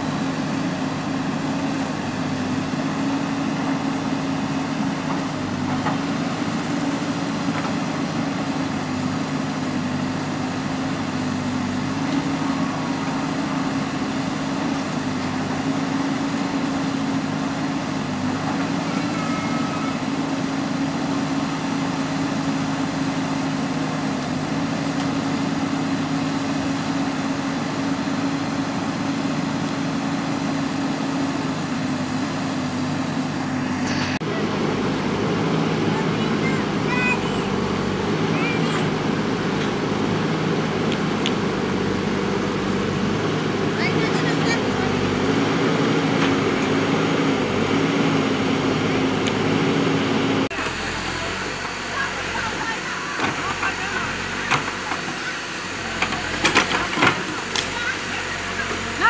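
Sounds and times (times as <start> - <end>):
diesel engine running: 0.0 - 59.0
backhoe digging soil: 50.5 - 59.0.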